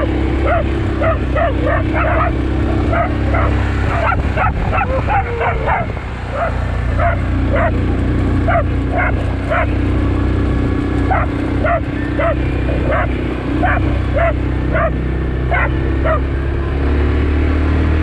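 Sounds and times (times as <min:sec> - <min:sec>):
quad bike engine running: 0:00.0 - 0:18.0
dog barking: 0:00.4 - 0:09.9, 0:11.0 - 0:16.3.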